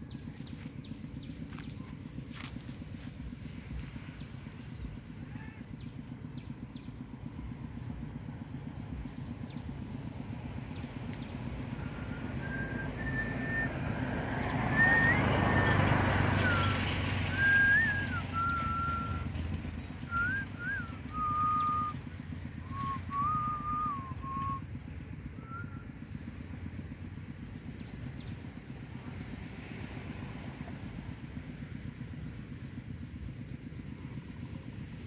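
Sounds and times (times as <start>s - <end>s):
vehicle passing: 0.0s - 35.0s
person whistling: 12.2s - 13.7s, 14.7s - 15.8s, 16.4s - 19.3s, 20.1s - 22.0s, 22.7s - 24.6s.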